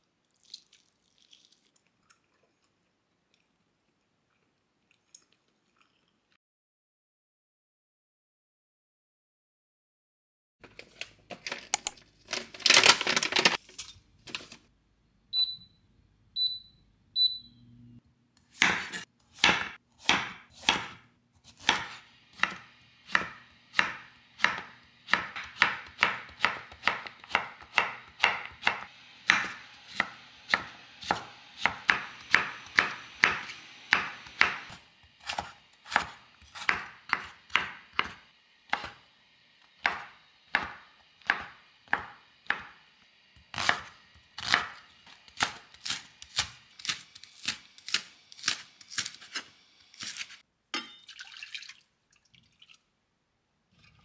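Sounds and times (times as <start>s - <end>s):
knife chopping on cutting board: 18.5s - 39.0s, 39.8s - 42.8s, 43.5s - 50.9s.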